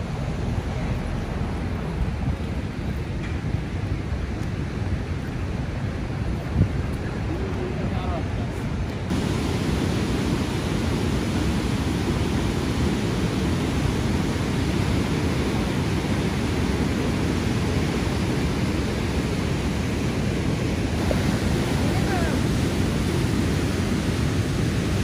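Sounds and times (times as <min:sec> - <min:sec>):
river rapids rushing: 0:09.1 - 0:25.0.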